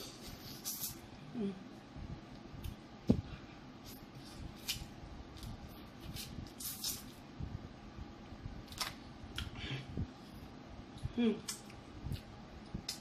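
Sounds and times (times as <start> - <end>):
lip smacks and clicks: 10.9 - 13.0.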